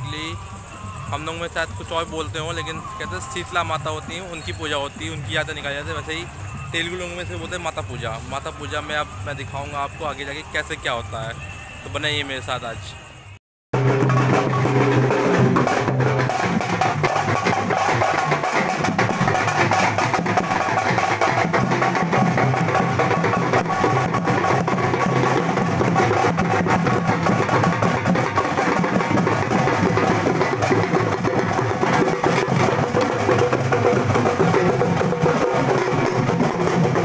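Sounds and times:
barrel drums played with sticks: 13.8 - 37.0.

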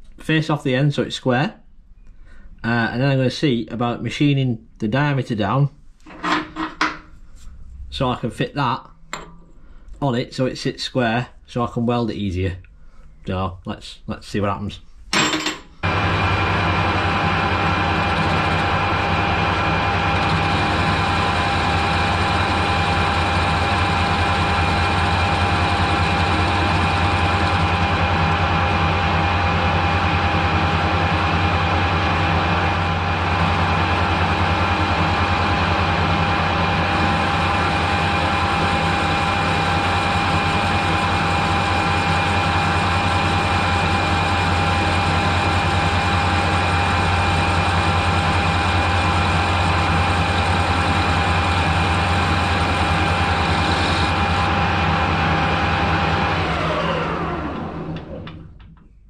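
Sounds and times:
metal lathe humming and whining: 15.8 - 58.1.

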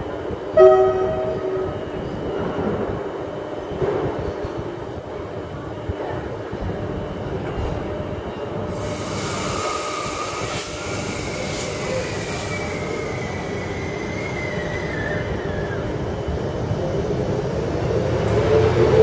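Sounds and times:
electric train rumbling on track: 0.0 - 19.0
high wheel squeal with hiss: 8.8 - 15.8.

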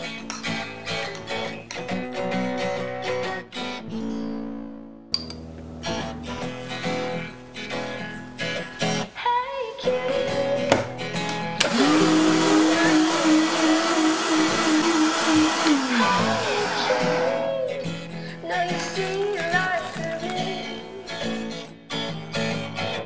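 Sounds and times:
acoustic guitar music: 0.0 - 23.0
blender motor hum: 11.6 - 18.0.

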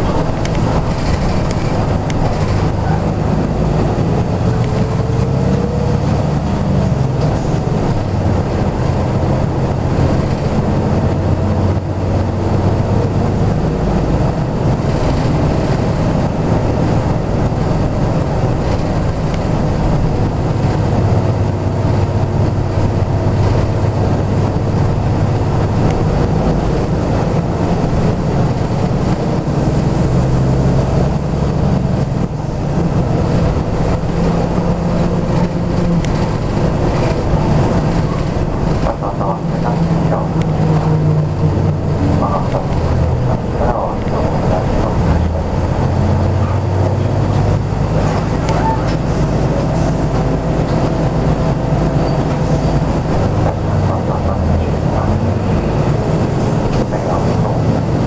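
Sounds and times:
bus diesel engine drone: 0.0 - 58.0
road rumble: 0.0 - 58.0.

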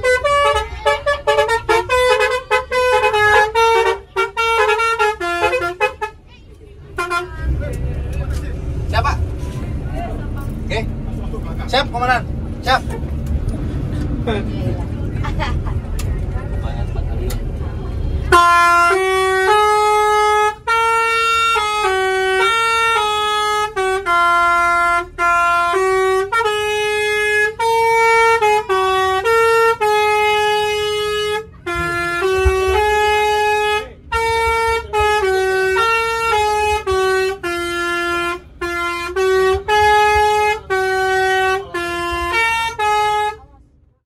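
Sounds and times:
musical air horn melody: 0.0 - 6.2, 18.2 - 43.4.

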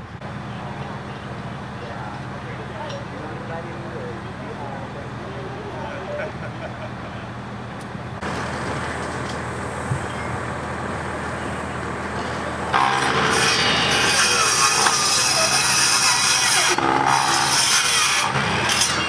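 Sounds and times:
fire engine idling: 0.0 - 18.9
miter saw cutting wood: 11.8 - 19.0.

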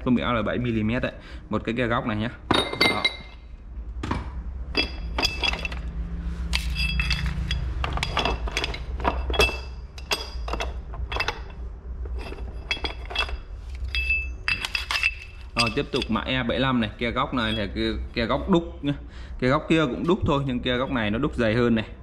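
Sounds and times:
metal brackets clinking: 4.7 - 18.4.

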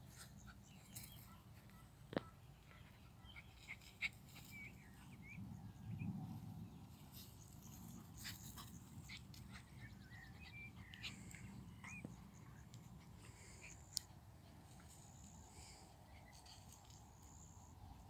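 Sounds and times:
small birds chirping: 0.0 - 18.0
light clicks and rustles: 10.9 - 17.8.

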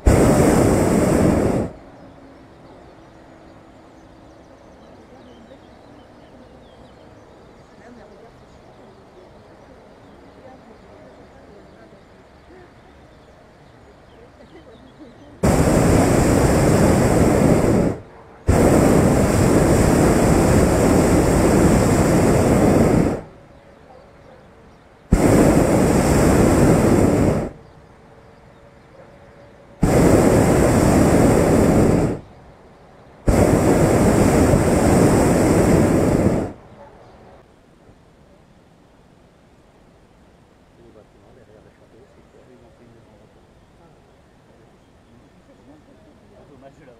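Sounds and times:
propane burner blasts: 0.0 - 2.0, 15.4 - 23.5, 25.0 - 27.9, 29.8 - 32.5, 33.1 - 36.7.

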